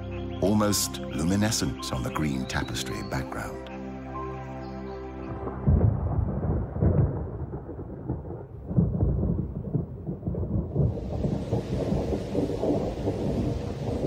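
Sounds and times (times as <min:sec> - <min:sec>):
thunder rumbling: 0:05.3 - 0:14.0
rain hissing: 0:10.7 - 0:14.0.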